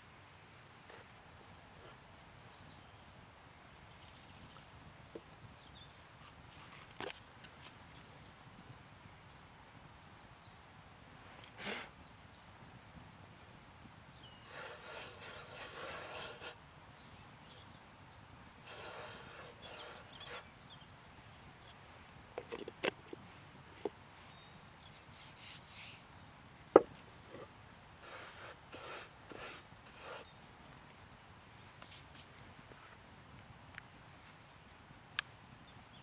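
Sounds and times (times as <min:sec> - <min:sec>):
hand rubbing flour on wood: 0:14.5 - 0:16.6, 0:18.7 - 0:20.5.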